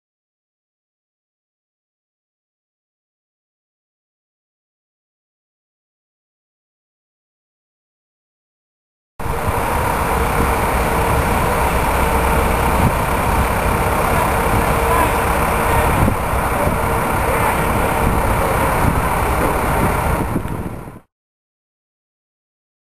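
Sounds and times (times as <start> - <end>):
engine running steadily: 9.2 - 21.1
low rumble: 9.2 - 21.1.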